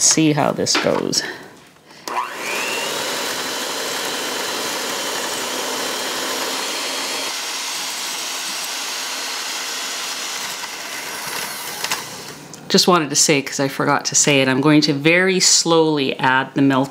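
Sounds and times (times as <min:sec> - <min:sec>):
electric hand mixer whisking: 0:02.0 - 0:12.4.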